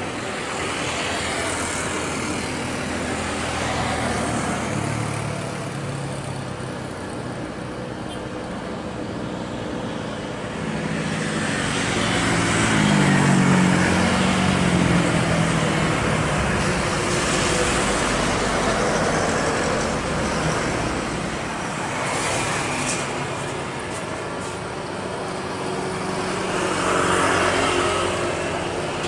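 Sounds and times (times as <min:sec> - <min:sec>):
jet engines roaring: 0:10.4 - 0:29.0.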